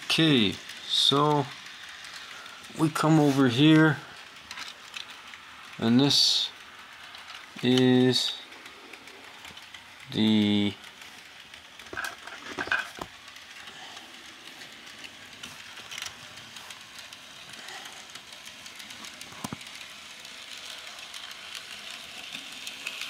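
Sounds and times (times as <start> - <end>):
steam hiss: 0.0 - 4.3, 13.2 - 19.8.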